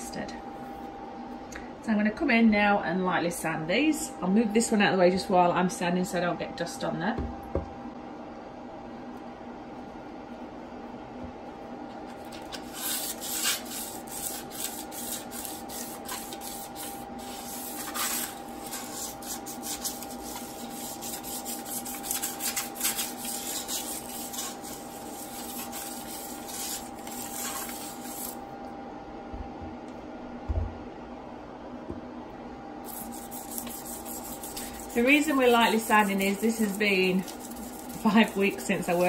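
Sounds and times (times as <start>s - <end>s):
hand sanding scratchy strokes: 12.6s - 28.4s, 32.8s - 39.0s.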